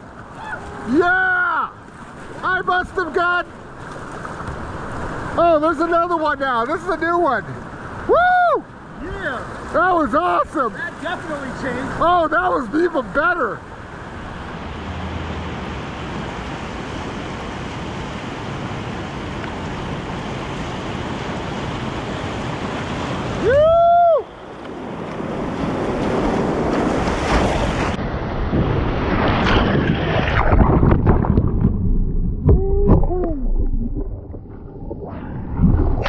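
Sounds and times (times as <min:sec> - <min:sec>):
rushing river water: 0:00.0 - 0:28.0
person whooping: 0:00.4 - 0:01.7, 0:08.1 - 0:08.6, 0:23.4 - 0:24.3, 0:32.5 - 0:33.5
paddle splashes: 0:01.6 - 0:06.0, 0:24.8 - 0:28.0, 0:29.0 - 0:36.0.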